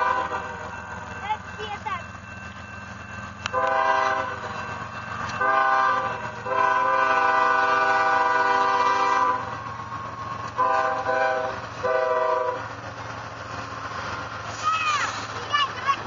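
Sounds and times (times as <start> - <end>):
locomotive air horn blasts: 0.0 - 0.6, 3.5 - 4.6, 5.4 - 9.6, 10.6 - 12.6
locomotive engine and wheels rumbling: 0.0 - 16.0.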